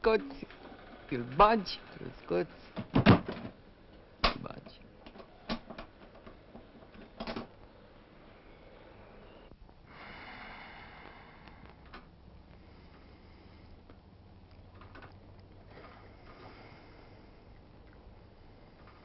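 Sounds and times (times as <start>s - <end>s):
soft hiss: 7.6s - 19.0s
faint clicks and knocks: 11.4s - 16.6s.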